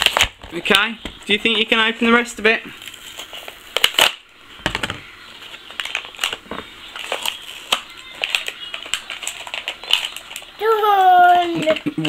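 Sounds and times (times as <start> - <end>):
plastic bag crinkling: 5.4 - 12.0.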